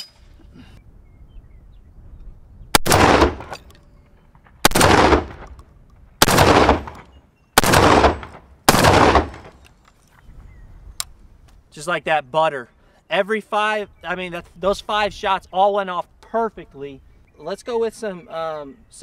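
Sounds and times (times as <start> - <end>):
shotgun shots with echo: 2.8 - 3.6, 4.6 - 5.5, 6.2 - 9.5.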